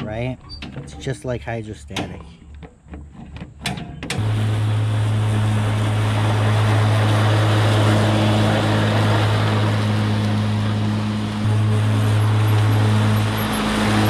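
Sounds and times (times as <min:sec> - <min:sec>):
mower deck whirring: 0:00.0 - 0:14.0
electric motor humming: 0:04.2 - 0:14.0.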